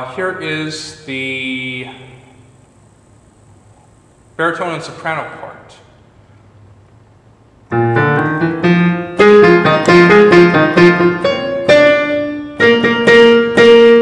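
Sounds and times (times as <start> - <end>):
digital piano notes: 7.7 - 14.0.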